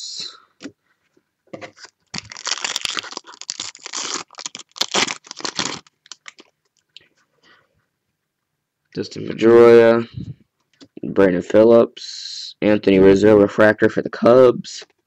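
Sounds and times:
wrapper tearing and crinkling: 1.7s - 6.5s.

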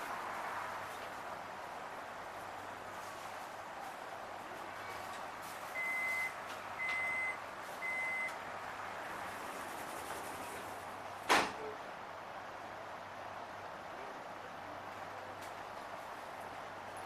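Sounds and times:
train carriage hum: 0.0s - 17.0s
short high beeps: 5.8s - 8.3s.

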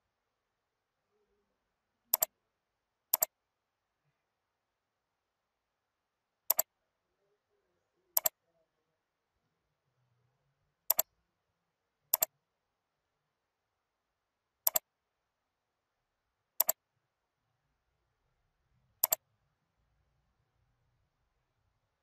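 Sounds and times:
computer mouse button clicking: 2.1s - 2.3s, 8.2s - 8.4s, 16.6s - 16.8s, 19.0s - 19.2s.

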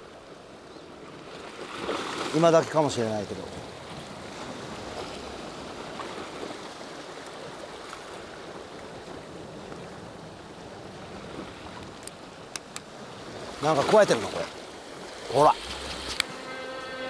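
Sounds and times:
sea water sloshing: 1.0s - 16.4s.

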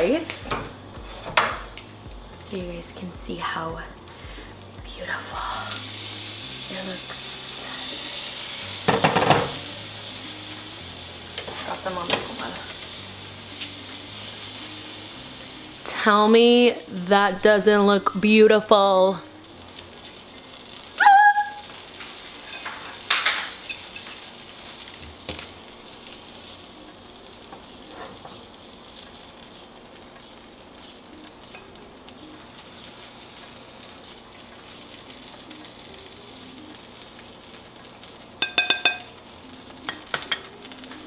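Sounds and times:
food frying sizzle: 0.0s - 41.0s
spoon clinking on pan: 38.4s - 39.1s.

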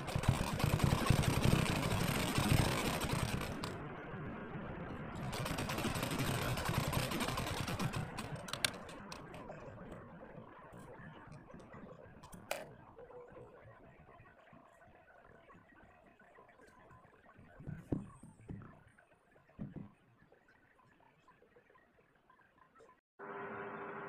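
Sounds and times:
sewing machine stitching: 0.0s - 3.8s, 5.2s - 9.4s.

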